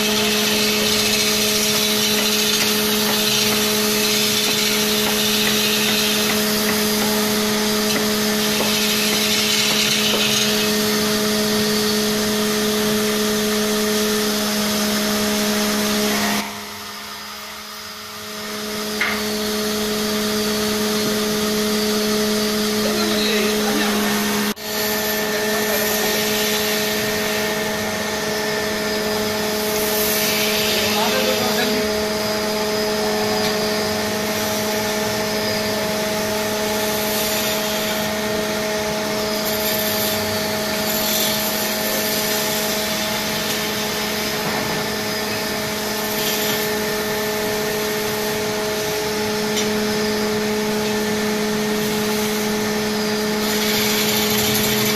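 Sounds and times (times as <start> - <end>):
lathe motor hum: 0.0 - 54.9
chisel scraping wood: 0.1 - 10.6.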